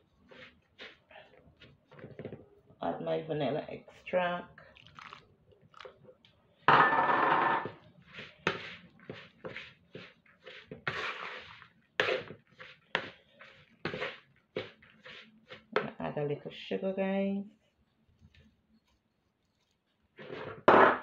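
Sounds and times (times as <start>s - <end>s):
spatula scraping mixture in plastic bowl: 0.2s - 2.3s, 7.6s - 16.0s, 19.6s - 20.7s.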